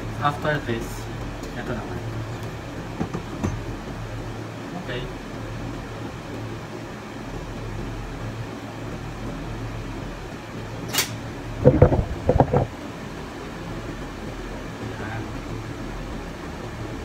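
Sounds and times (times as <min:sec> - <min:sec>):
steady low hum: 0:00.0 - 0:17.0
knocks and clatters: 0:11.6 - 0:12.8.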